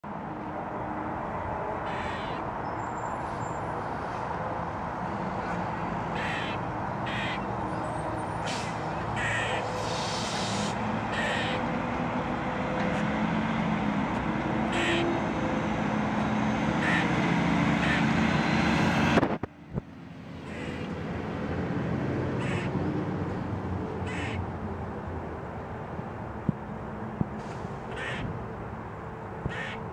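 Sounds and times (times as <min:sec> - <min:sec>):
squirrel alarm barks: 0:01.8 - 0:02.5, 0:06.1 - 0:07.6, 0:09.0 - 0:09.7, 0:11.1 - 0:11.7, 0:14.7 - 0:15.2, 0:16.8 - 0:17.1, 0:17.8 - 0:18.1, 0:22.4 - 0:22.7, 0:24.1 - 0:24.4, 0:29.5 - 0:29.9.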